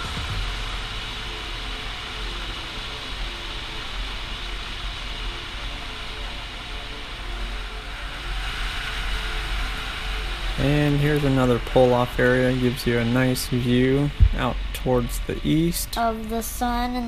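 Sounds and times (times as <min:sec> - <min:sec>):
wind noise on microphone: 0:00.0 - 0:01.3, 0:14.1 - 0:15.4
motorcycle engine running: 0:00.0 - 0:05.8, 0:07.0 - 0:15.8.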